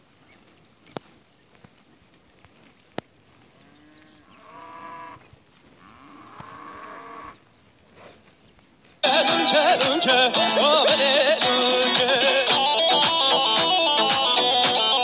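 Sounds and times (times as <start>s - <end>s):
cows mooing: 3.7s - 5.2s, 5.8s - 7.4s.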